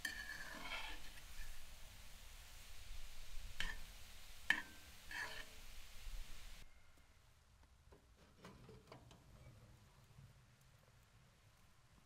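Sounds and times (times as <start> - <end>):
scraping at a wood stove: 0.0 - 1.8, 3.3 - 6.6, 8.1 - 9.6.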